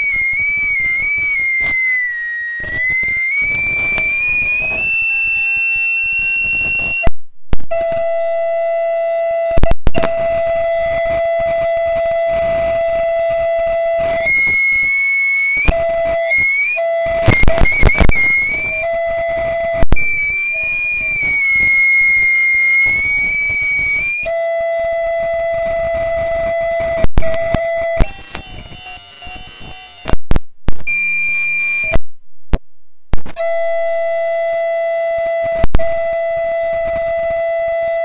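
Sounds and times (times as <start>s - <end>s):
audio feedback howl: 0.0s - 32.0s, 33.2s - 38.0s
loud pops and crackles: 2.6s - 7.7s, 9.6s - 12.8s, 14.0s - 24.4s, 25.6s - 31.0s, 31.8s - 33.5s.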